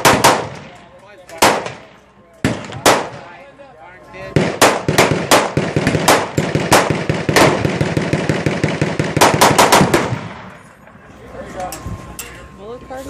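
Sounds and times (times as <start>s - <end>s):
machine gun fire: 0.0s - 0.7s, 4.4s - 10.5s.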